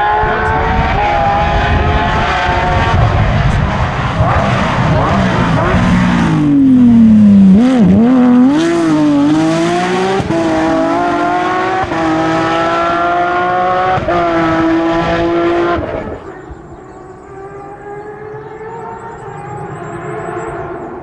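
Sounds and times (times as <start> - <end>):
race car engine accelerating: 0.0 - 21.0.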